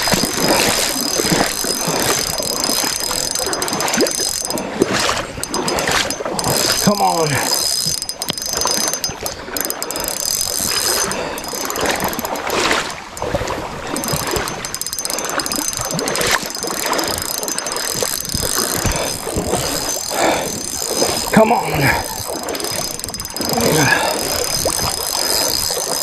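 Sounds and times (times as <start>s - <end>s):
fishing reel clicking and ratcheting: 0.0s - 26.0s.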